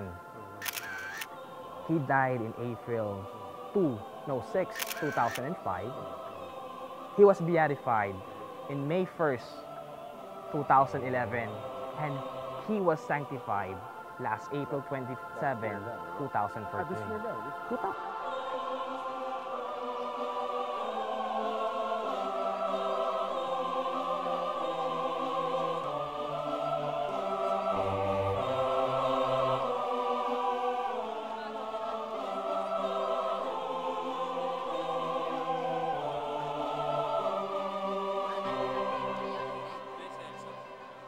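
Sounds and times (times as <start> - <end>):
choir singing held chords: 0.0 - 41.0.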